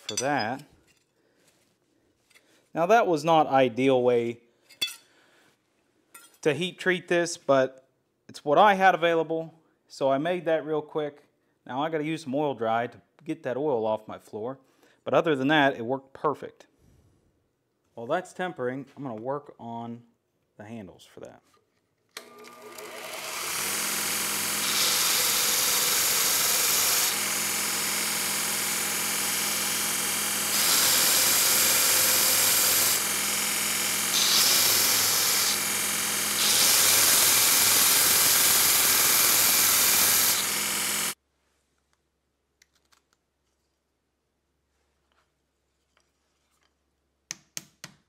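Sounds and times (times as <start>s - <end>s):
belt grinder sanding wood: 22.2s - 41.2s.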